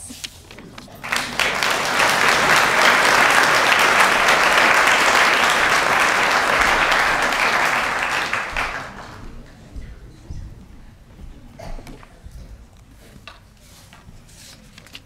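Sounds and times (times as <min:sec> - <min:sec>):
audience applauding: 0:00.8 - 0:09.5.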